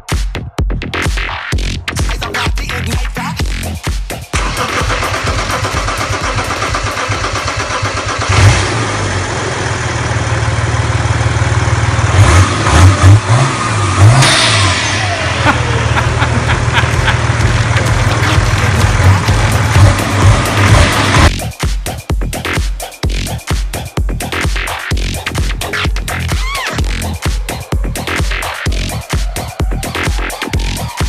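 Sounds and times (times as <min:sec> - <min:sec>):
diesel engine starting and idling: 0:04.3 - 0:21.5
engine revving: 0:04.3 - 0:21.5.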